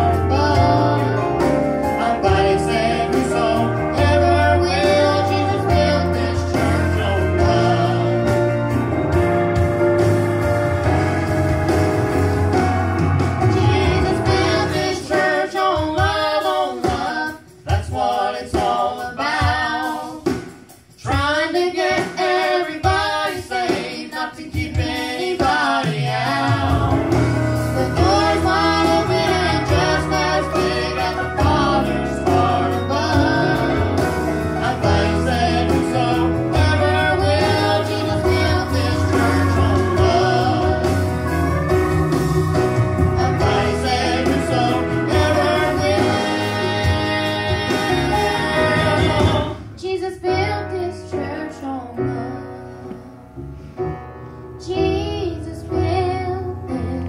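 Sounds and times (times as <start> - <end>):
man and woman singing: 0.0 - 8.4, 13.5 - 20.4, 21.0 - 27.2, 27.8 - 41.1, 43.2 - 53.1
steady bass line: 0.0 - 15.4, 26.0 - 49.8
instrumental accompaniment: 0.0 - 54.6.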